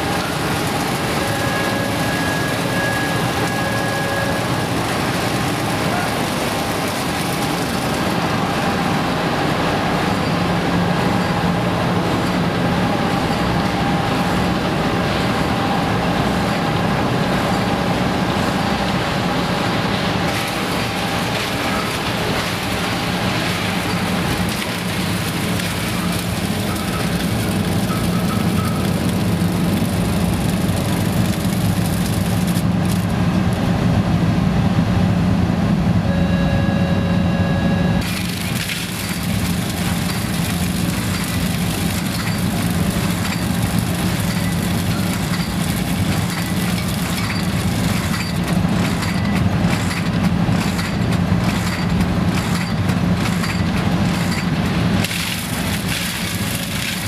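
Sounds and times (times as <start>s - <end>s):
machine hum: 0.0s - 57.0s
steady tone: 36.0s - 38.0s.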